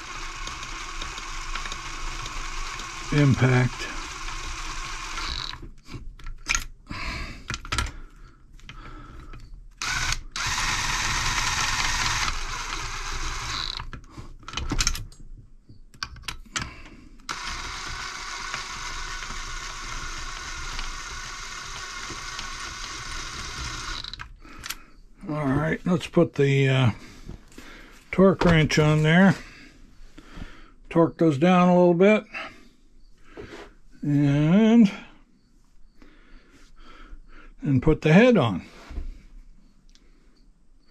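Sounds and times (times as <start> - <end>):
cordless drill motor running: 0.0 - 5.9, 9.8 - 14.3, 16.4 - 24.8.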